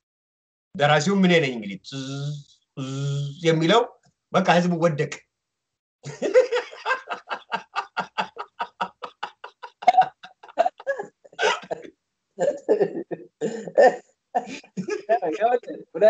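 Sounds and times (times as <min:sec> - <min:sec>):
men laughing heartily: 0:06.1 - 0:11.8.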